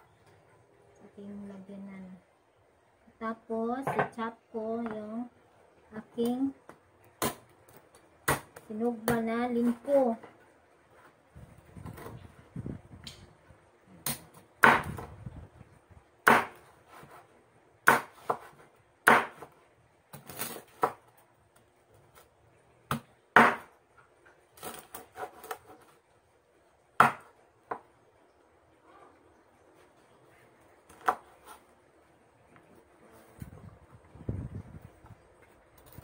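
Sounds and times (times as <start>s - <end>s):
knife chopping on wooden board: 16.2s - 17.2s, 17.8s - 19.5s, 22.9s - 23.7s, 27.0s - 27.8s.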